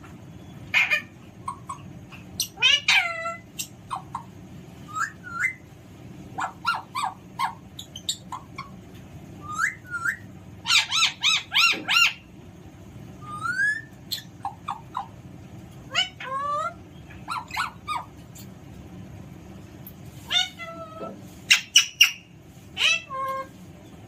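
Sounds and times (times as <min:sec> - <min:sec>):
parakeet whistling and calling: 0:00.4 - 0:05.7, 0:06.4 - 0:08.8, 0:09.4 - 0:12.3, 0:13.2 - 0:15.2, 0:15.9 - 0:18.2, 0:20.3 - 0:20.8, 0:21.5 - 0:23.5.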